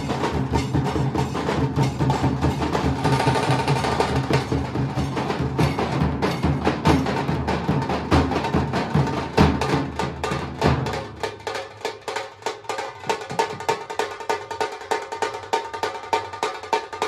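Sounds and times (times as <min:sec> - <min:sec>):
drums played with sticks: 0:00.0 - 0:17.0.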